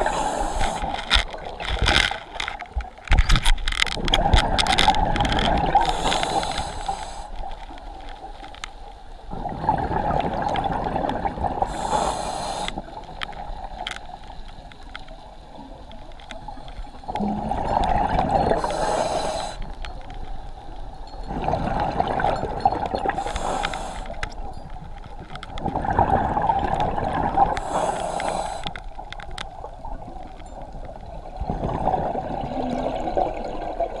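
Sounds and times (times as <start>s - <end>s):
scuba regulator inhalation hiss: 0.0s - 0.9s, 5.8s - 7.4s, 11.7s - 12.8s, 18.5s - 19.7s, 23.1s - 24.2s, 27.6s - 28.8s
bubbling exhalation underwater: 17.2s - 18.6s.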